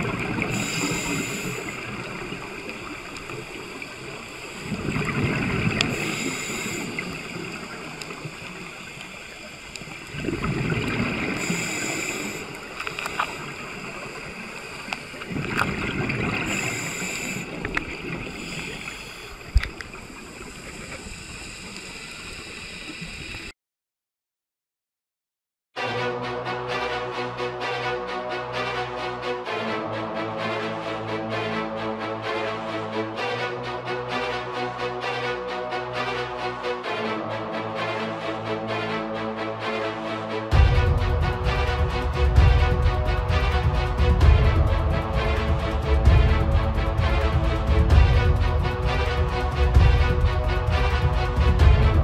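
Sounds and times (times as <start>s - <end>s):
exhaled bubbles: 0.0s - 23.3s
regulator breathing hiss: 0.1s - 23.5s.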